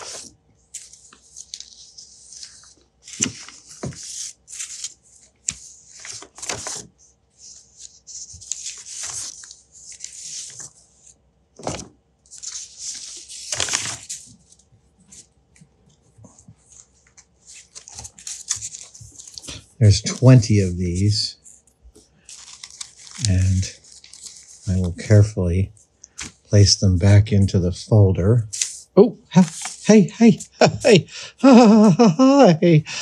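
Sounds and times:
paper sheets rustling: 0:00.0 - 0:31.0
pages tapping down: 0:02.4 - 0:06.9, 0:11.6 - 0:14.4, 0:26.1 - 0:26.5.

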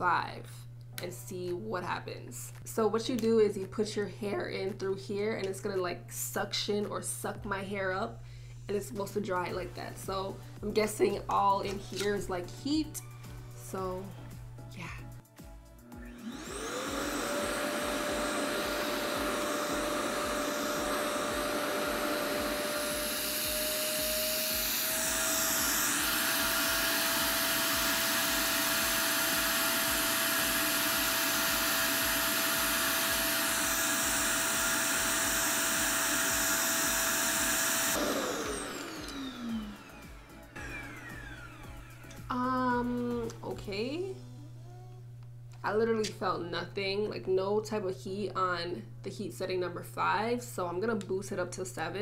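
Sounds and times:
hair dryer motor whining: 0:15.8 - 0:43.6.

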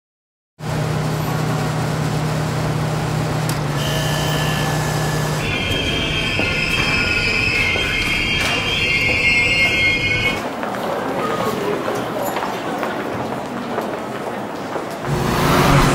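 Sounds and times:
subway train rumbling: 0:00.6 - 0:15.9
train wheels squealing on rails: 0:03.8 - 0:10.5.

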